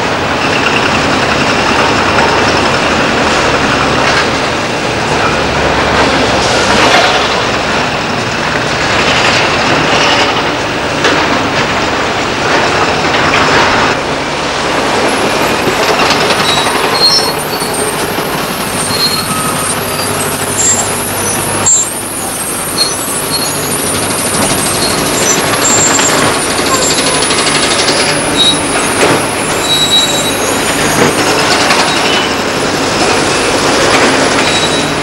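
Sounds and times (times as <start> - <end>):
diesel dump truck running: 0.0 - 35.0
short high squeaks: 15.8 - 32.3, 34.4 - 35.0.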